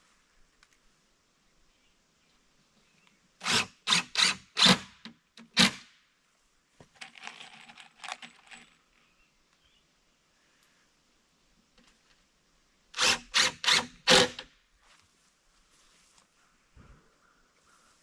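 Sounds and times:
cordless drill running: 13.0 - 14.4.

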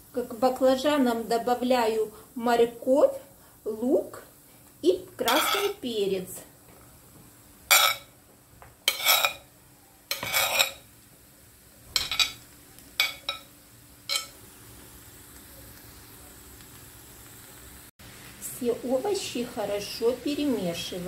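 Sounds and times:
faint sizzle in frying pan: 0.0 - 21.0
spoon scraping a plate: 5.3 - 5.8, 7.7 - 8.1, 8.8 - 9.5, 10.1 - 10.8, 14.1 - 14.4.

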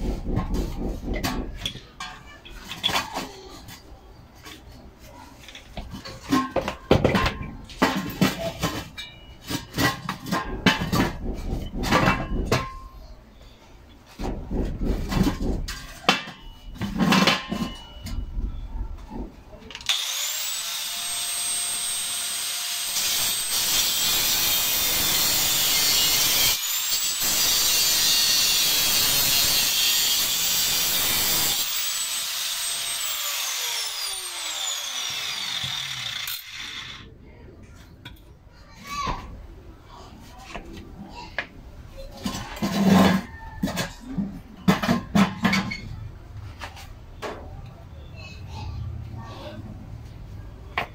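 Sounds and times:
knocks and clatter: 0.0 - 3.4, 5.8 - 13.0, 14.1 - 19.4
angle grinder cutting steel: 19.8 - 37.1.

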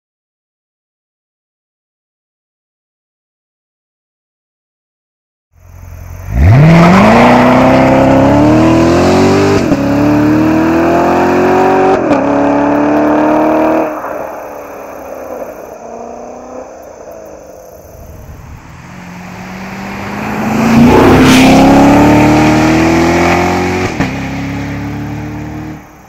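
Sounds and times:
car engine accelerating hard: 5.6 - 26.0.

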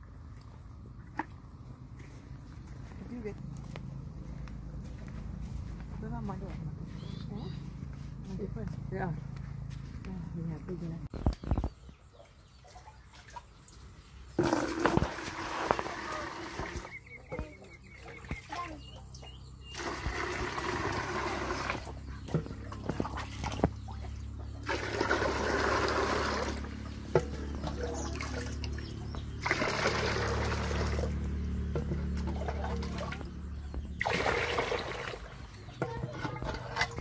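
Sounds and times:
jug knocking and dipping: 0.2 - 3.4, 12.6 - 18.7, 19.7 - 37.0
water pouring into plastic bucket: 14.4 - 16.9, 19.7 - 22.0, 24.6 - 31.3, 34.0 - 35.5.

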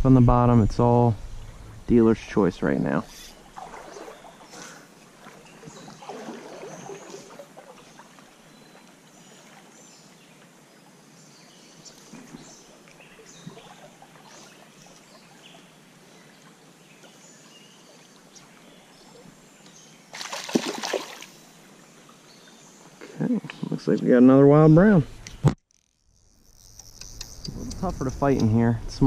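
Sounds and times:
shallow stream flowing: 2.4 - 23.4
fish splashing at surface: 20.2 - 21.3.

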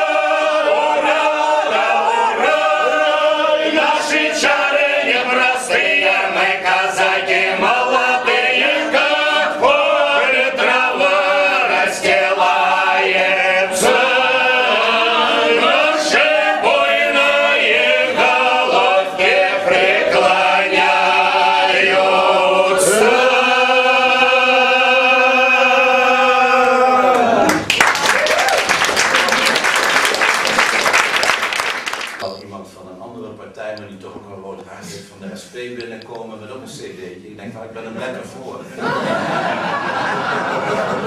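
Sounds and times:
group singing unaccompanied: 0.0 - 27.4
applause: 27.4 - 32.2.

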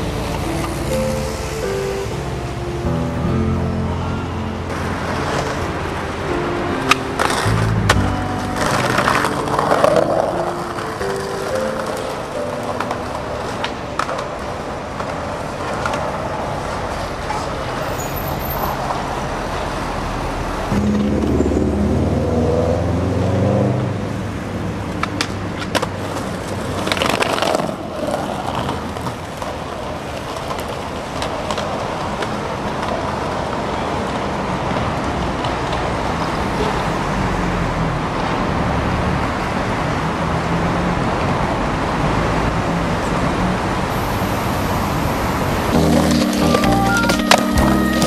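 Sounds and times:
heavy vehicle engine passing: 0.0 - 27.7, 35.8 - 48.0
city street traffic: 0.0 - 48.0
skateboard wheels rolling on concrete: 0.0 - 48.0
skateboard clacks: 6.8 - 17.6, 24.8 - 35.9, 45.7 - 48.0.

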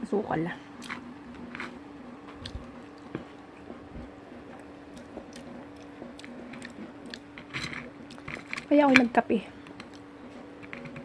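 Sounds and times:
faint low hum: 0.0 - 11.0
person chewing food: 0.8 - 8.6.

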